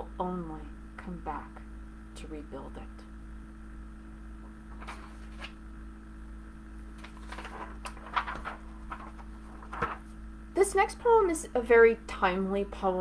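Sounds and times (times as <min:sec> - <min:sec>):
low electrical hum: 0:00.0 - 0:13.0
soft rustles and clicks: 0:04.7 - 0:05.6, 0:06.8 - 0:10.2.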